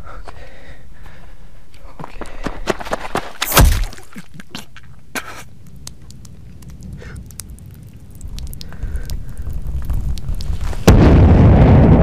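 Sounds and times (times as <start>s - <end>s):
loud thud: 3.4s - 4.0s, 10.7s - 12.0s.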